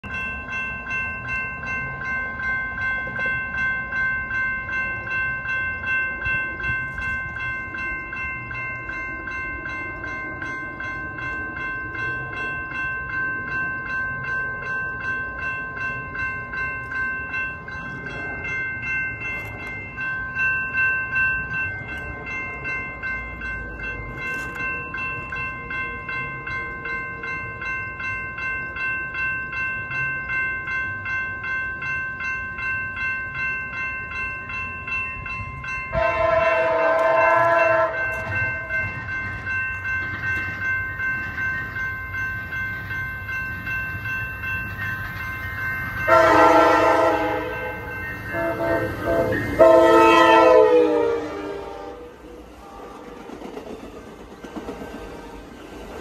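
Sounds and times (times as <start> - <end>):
railroad crossing bell ringing: 0.0 - 56.0.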